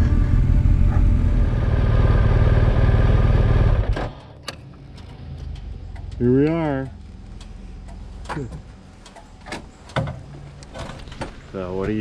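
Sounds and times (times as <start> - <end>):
motorcycle engine running: 0.0 - 4.1.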